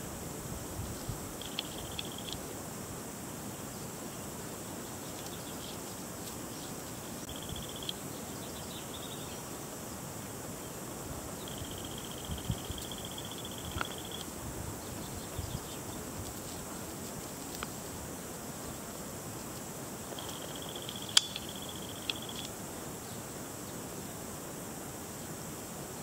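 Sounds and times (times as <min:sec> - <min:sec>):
high insect trill: 0:00.0 - 0:26.0
steady hiss: 0:00.0 - 0:26.0
sharp click: 0:20.2 - 0:22.5.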